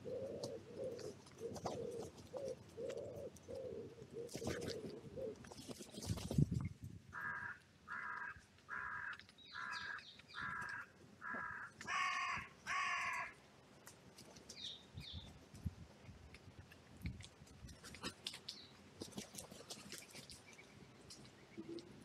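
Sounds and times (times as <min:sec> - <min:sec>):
crow cawing: 0:07.2 - 0:13.4
faint bird calls: 0:07.2 - 0:13.4.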